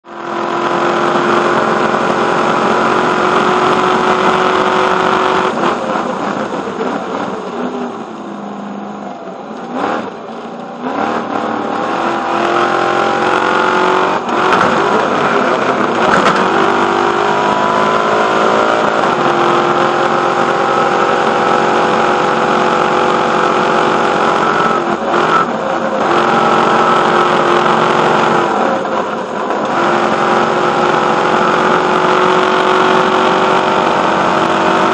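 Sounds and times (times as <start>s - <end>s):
racing truck engine revving: 0.1s - 34.9s.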